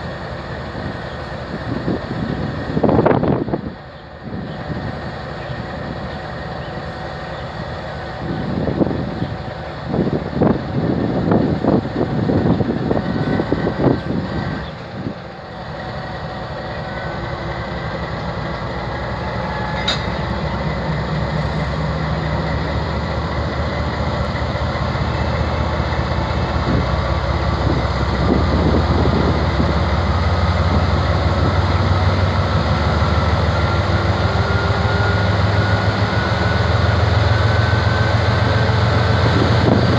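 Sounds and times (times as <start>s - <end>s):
diesel locomotive engine revving: 0.0s - 39.9s
train clanks and knocks: 0.0s - 39.9s.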